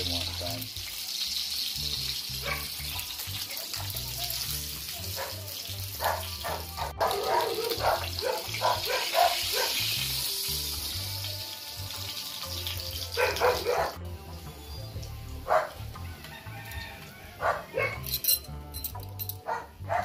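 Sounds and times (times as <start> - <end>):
fish sizzling in oil: 0.0 - 17.4
background music: 0.0 - 20.0
dog barking: 2.4 - 2.8, 5.2 - 9.8, 13.2 - 14.0, 15.5 - 15.8, 17.4 - 18.1, 19.4 - 20.0.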